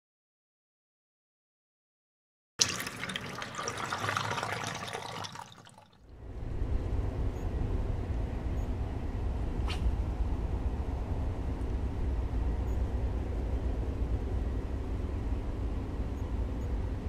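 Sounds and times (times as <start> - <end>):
water rushing and splashing: 2.6 - 5.9
low outdoor rumble: 6.1 - 17.0.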